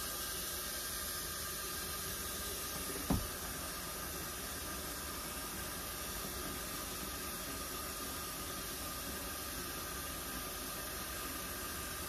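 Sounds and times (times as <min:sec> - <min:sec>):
short thump: 0:03.0 - 0:03.4.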